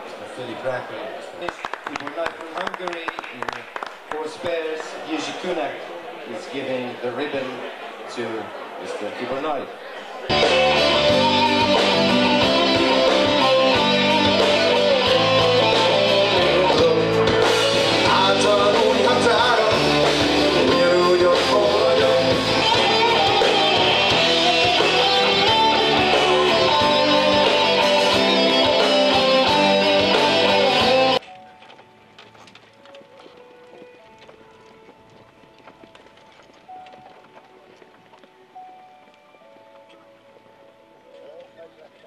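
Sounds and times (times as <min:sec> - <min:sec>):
rock band playing live: 0:10.3 - 0:31.2
man singing: 0:15.0 - 0:24.0.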